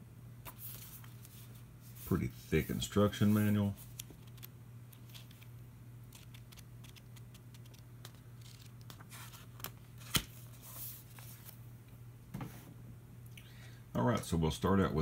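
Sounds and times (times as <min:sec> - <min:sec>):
booklet pages flipping: 0:00.4 - 0:11.6
sharp paper snap: 0:09.6 - 0:10.4.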